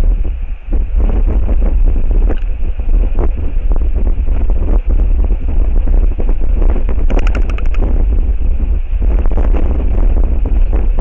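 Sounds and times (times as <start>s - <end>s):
strong wind buffeting microphone: 0.0s - 11.0s.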